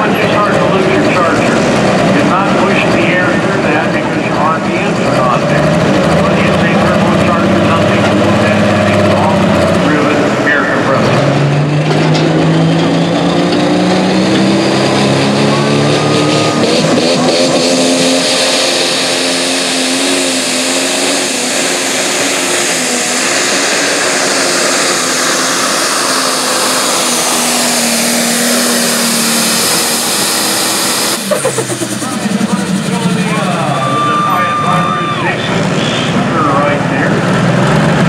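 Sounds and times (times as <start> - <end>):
tractor diesel engine at full load: 0.0 - 38.0.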